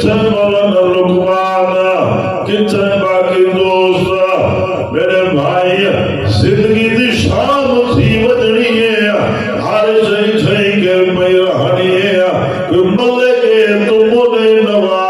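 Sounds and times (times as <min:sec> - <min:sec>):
man chanting into a microphone: 0:00.0 - 0:15.0.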